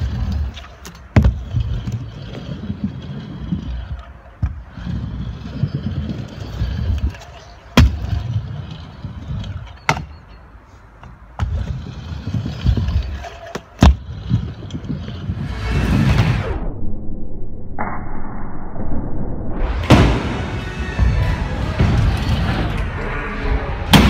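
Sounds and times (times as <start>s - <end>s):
scooter wheels rolling: 0.0s - 16.2s, 19.9s - 22.9s
rushing noise: 15.1s - 24.0s.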